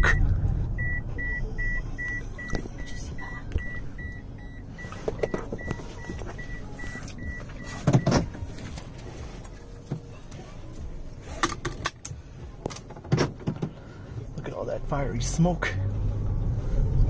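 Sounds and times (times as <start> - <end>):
car warning chime beeping: 0.0 - 9.8.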